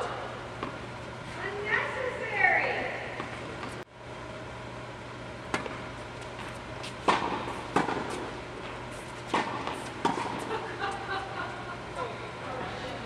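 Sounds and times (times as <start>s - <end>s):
tennis balls struck by rackets: 5.5s - 6.4s, 7.0s - 10.6s
tennis balls bouncing on court: 5.5s - 10.9s.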